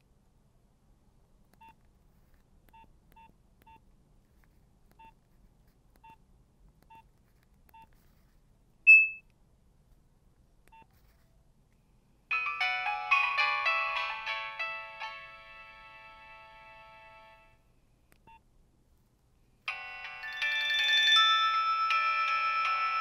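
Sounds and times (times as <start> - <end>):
phone ringtone: 12.3 - 17.6, 19.7 - 23.0.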